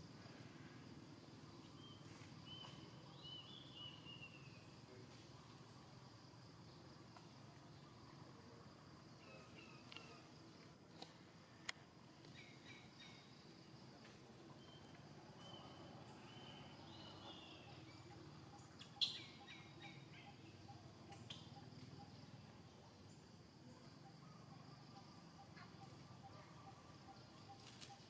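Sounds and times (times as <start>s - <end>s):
faint sharp clicks: 11.0s - 12.4s.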